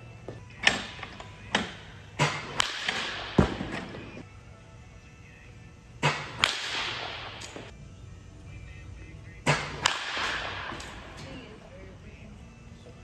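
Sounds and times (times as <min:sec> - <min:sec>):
baseball bat cracking ball: 0:00.7 - 0:04.1, 0:06.0 - 0:07.7, 0:09.5 - 0:11.2.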